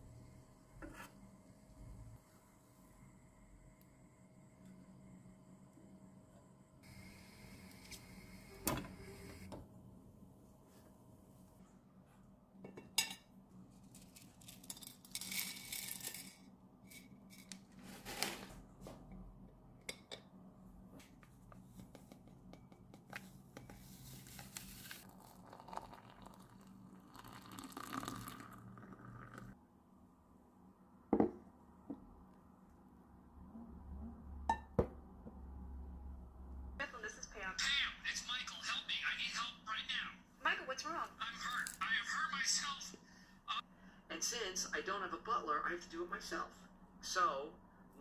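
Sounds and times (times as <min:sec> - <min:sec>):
crockery on a table: 0:00.0 - 0:36.3, 0:37.4 - 0:44.1
low steady hum: 0:00.0 - 0:37.6.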